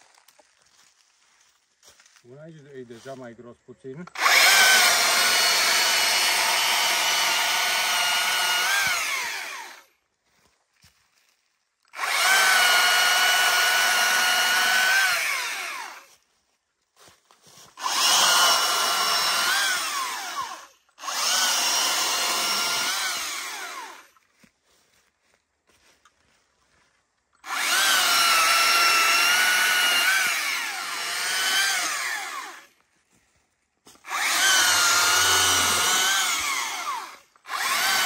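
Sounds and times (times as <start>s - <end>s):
battery chainsaw cutting wood: 4.1s - 9.9s, 11.9s - 16.2s, 17.6s - 24.2s, 27.4s - 32.8s, 33.9s - 38.0s
electric motor winding down: 4.1s - 9.9s, 11.9s - 16.1s, 17.7s - 24.2s, 27.4s - 32.8s, 34.0s - 38.0s.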